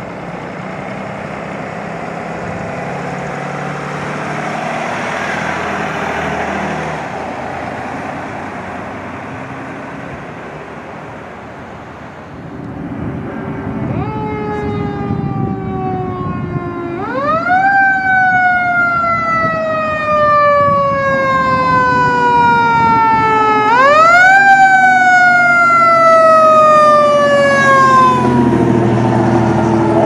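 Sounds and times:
truck engine rumbling: 0:00.0 - 0:30.0
mechanical siren wailing: 0:13.0 - 0:30.0.

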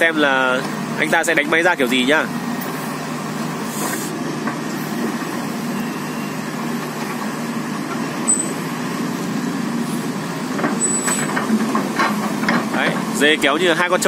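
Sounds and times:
excavator diesel engine running: 0:00.0 - 0:14.0
short high-pitched squeak: 0:08.3 - 0:08.6, 0:10.8 - 0:11.3.

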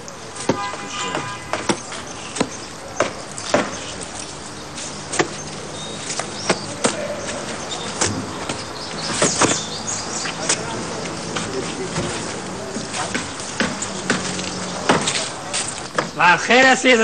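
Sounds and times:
sharp knocks of construction work: 0:00.4 - 0:04.2, 0:05.0 - 0:16.3.

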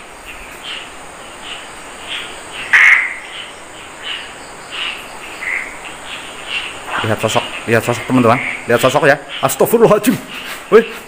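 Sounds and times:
harsh animal call: 0:04.3 - 0:10.8.

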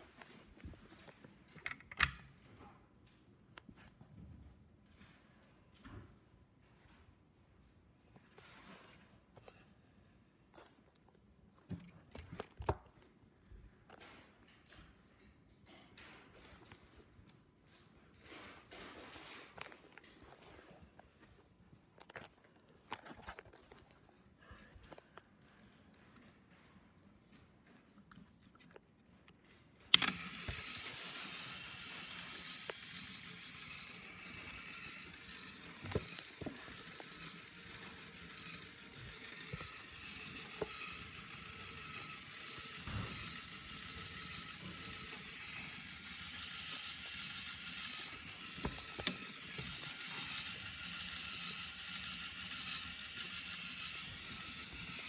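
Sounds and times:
plastic parts clicking: 0:01.5 - 0:02.2, 0:29.9 - 0:55.0
toy motors whirring: 0:29.9 - 0:55.0.

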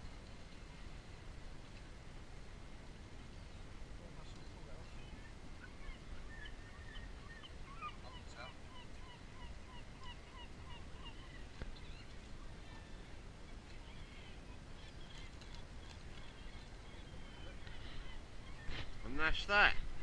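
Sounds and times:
bird calling faintly: 0:03.3 - 0:19.9.

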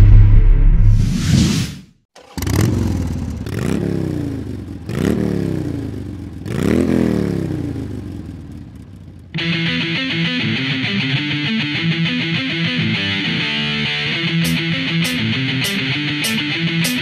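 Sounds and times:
deep rumble with whoosh: 0:00.0 - 0:01.9
motorcycle engine revving: 0:02.1 - 0:09.9.

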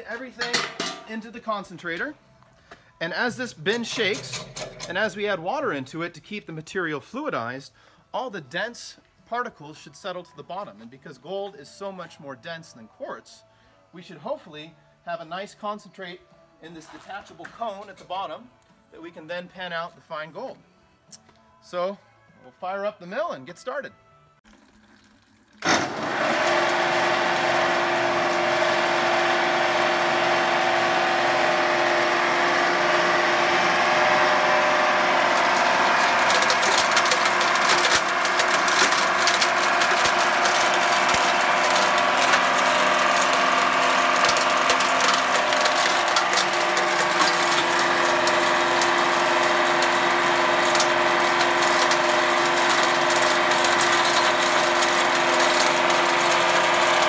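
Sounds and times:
hammer mill motor hum: 0:25.6 - 0:57.0
ore clattering in hammer mill: 0:25.6 - 0:57.0.

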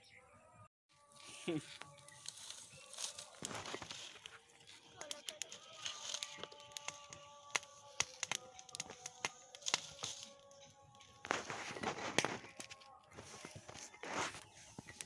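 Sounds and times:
wood fire crackling and popping: 0:01.9 - 0:15.0
rustling noise: 0:11.3 - 0:15.0.

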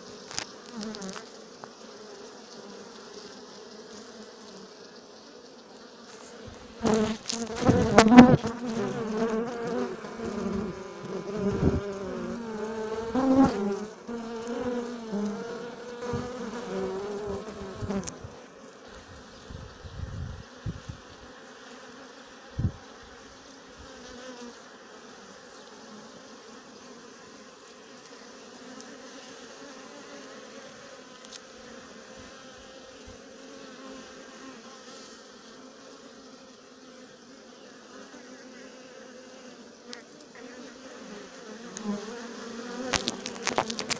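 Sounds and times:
bees buzzing: 0:00.0 - 0:43.9.

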